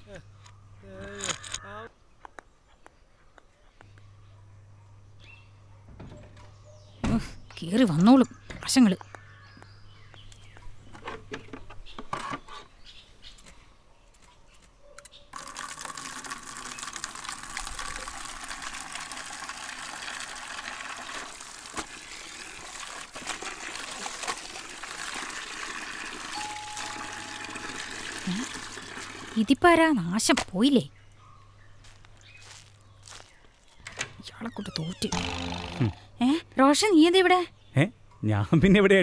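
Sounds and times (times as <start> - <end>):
water running from a tap: 15.4 - 29.5.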